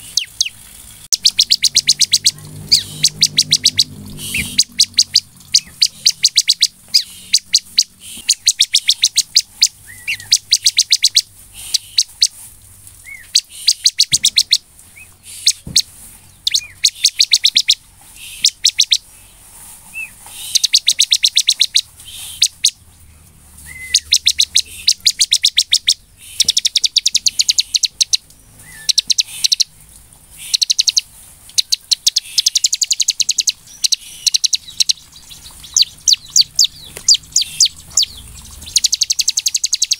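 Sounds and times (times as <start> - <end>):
bird whistled notes: 0.0 - 12.3, 13.1 - 14.6, 16.5 - 19.0, 20.0 - 22.8, 23.6 - 29.7, 30.4 - 31.0, 31.6 - 39.9
bird chirping rapidly: 0.0 - 12.4, 13.0 - 23.0, 23.6 - 39.9.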